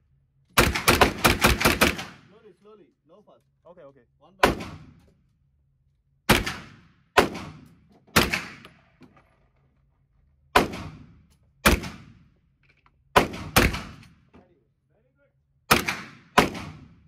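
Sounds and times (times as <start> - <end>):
gunshots with echo indoors: 6.3 - 8.7, 15.7 - 17.0.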